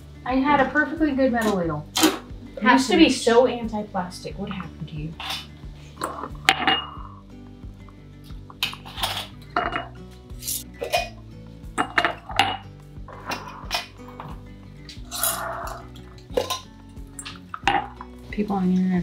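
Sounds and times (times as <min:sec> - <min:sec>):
faint background music: 0:00.0 - 0:19.0
ladle clinking on glass jars: 0:06.5 - 0:07.1, 0:08.6 - 0:09.9.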